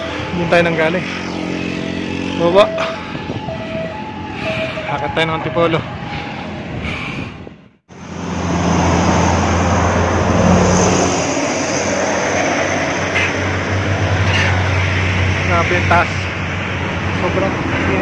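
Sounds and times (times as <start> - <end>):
diesel truck engine droning: 0.0 - 6.8
road noise: 0.0 - 18.0.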